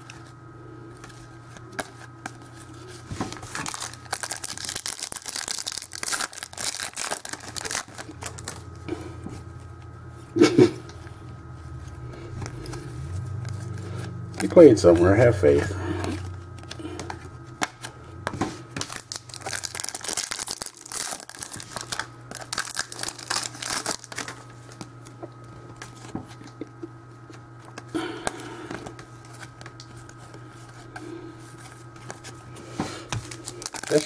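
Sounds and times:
low hum: 0.1 - 33.9
cards being handled: 0.9 - 9.5, 11.8 - 34.0
foil wrapper crinkling and tearing: 1.6 - 8.8, 14.3 - 15.6, 18.8 - 25.1, 33.1 - 34.0.

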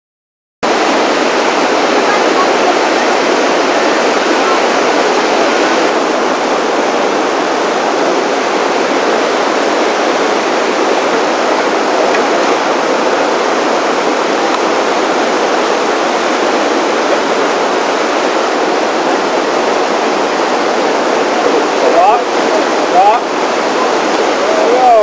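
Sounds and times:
whitewater rapids rushing: 0.6 - 25.0.

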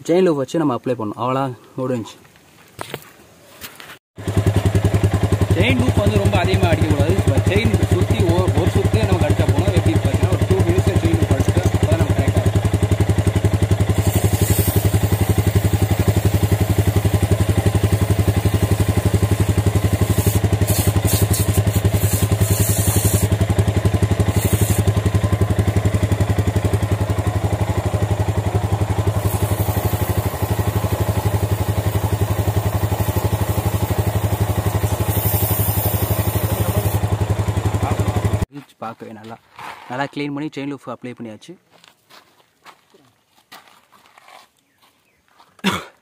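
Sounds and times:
motorcycle engine idling: 4.2 - 38.5
aerosol spray hissing: 13.8 - 23.4, 24.2 - 25.0, 28.9 - 37.2.

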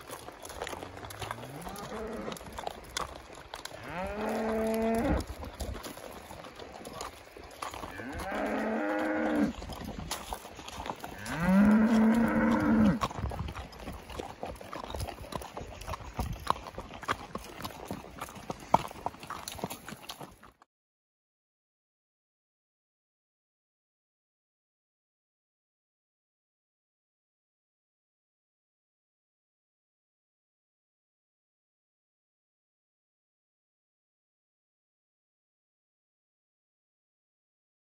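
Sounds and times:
horse hooves walking on gravel: 0.0 - 20.7
cattle mooing: 0.8 - 2.5, 3.7 - 5.3, 7.8 - 9.6, 11.1 - 13.1.

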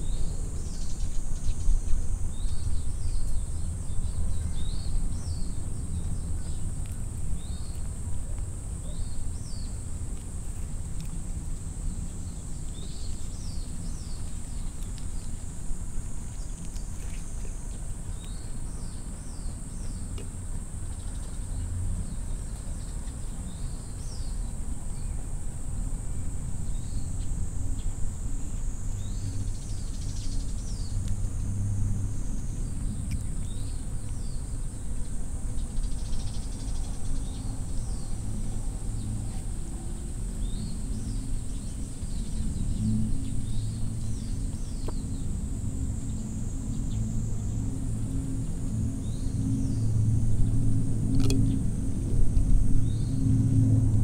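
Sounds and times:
small birds chirping: 0.0 - 9.9, 12.0 - 25.2, 32.4 - 45.4
low steady rumble: 0.0 - 54.0.

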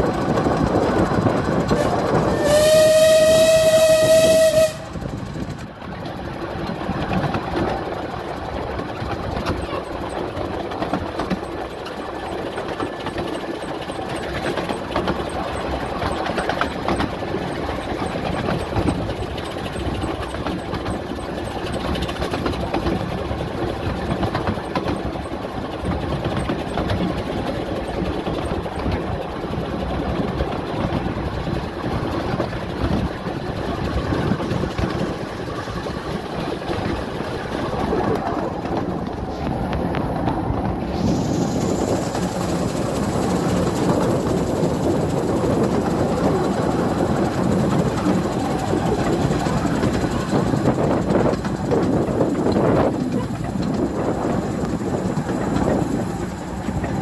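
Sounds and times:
steam locomotive running: 0.0 - 57.0
steam locomotive whistle blast: 1.8 - 5.0.

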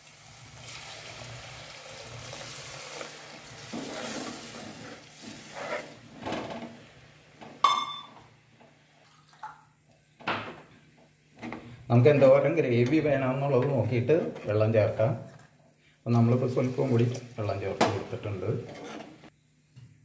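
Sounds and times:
water sizzling in hot oil: 0.0 - 6.2
spoon stirring and scraping: 3.6 - 6.0.

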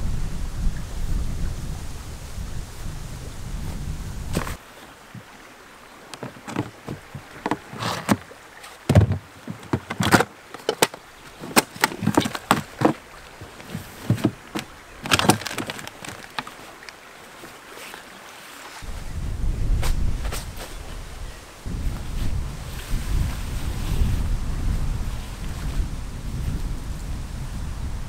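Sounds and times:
fabric sack rustling: 11.3 - 16.8.

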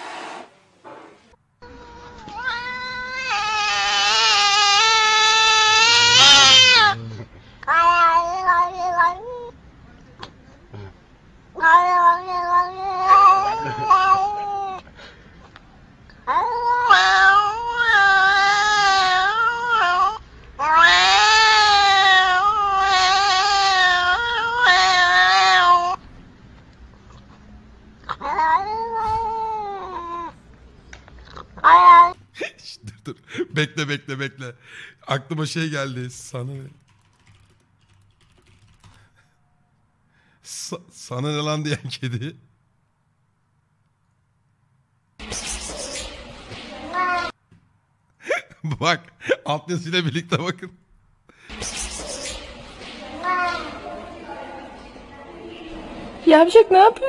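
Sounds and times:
cat yowling: 1.6 - 7.1, 7.7 - 9.6, 11.6 - 14.8, 16.3 - 26.0, 28.1 - 30.4, 31.6 - 32.2, 46.9 - 47.4, 53.2 - 53.8.

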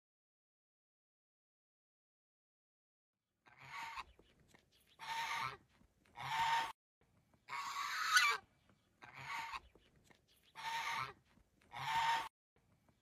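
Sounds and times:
goose honking: 6.2 - 6.7, 10.6 - 12.3.

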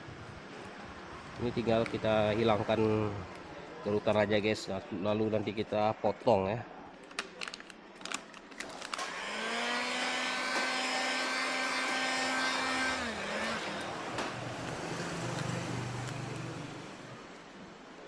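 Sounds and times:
heat gun whine and air rush: 9.0 - 14.1.

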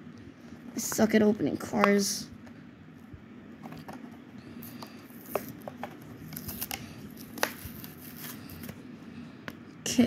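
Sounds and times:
sharp plastic cracks: 5.3 - 7.8.

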